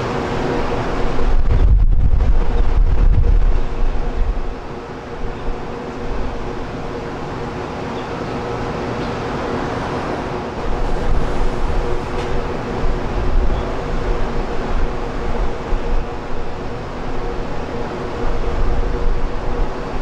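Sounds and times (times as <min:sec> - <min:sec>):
jet engines humming: 0:00.0 - 0:20.0
wind buffeting microphone: 0:00.6 - 0:06.7.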